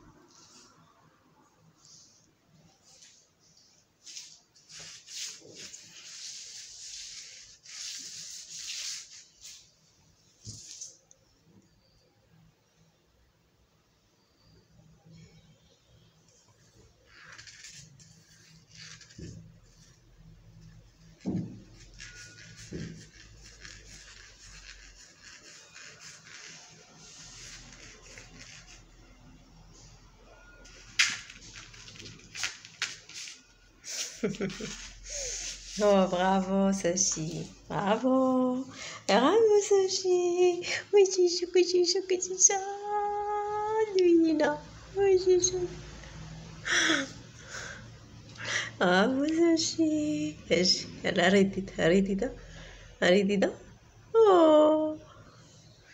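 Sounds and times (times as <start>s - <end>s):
paper rustling on a tabletop: 2.8s - 9.8s, 10.4s - 11.0s, 17.1s - 20.0s, 21.1s - 29.0s, 30.6s - 37.6s
scratchy rubbing on a surface: 4.0s - 9.7s, 17.2s - 20.0s, 21.2s - 29.0s, 31.4s - 37.6s.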